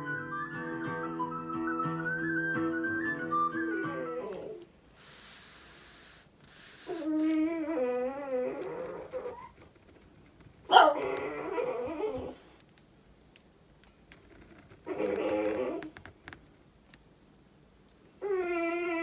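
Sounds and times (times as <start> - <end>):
dog whining: 3.3 - 4.7, 6.8 - 12.6, 14.8 - 16.2, 18.0 - 19.0
dog yelping: 3.8 - 4.6, 6.9 - 9.6, 10.6 - 12.4, 14.8 - 15.8.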